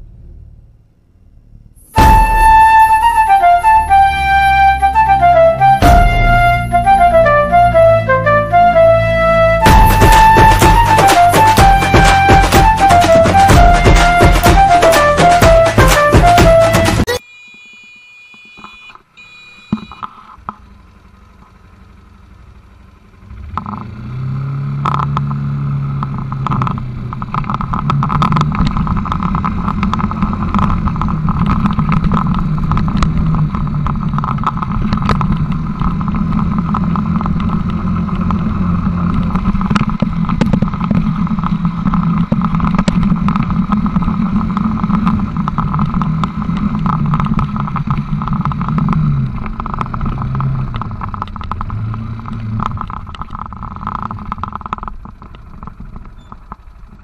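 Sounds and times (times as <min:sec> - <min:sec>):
atv engine running: 0:19.7 - 0:57.0
knocks and rattles on rough ground: 0:24.8 - 0:57.0.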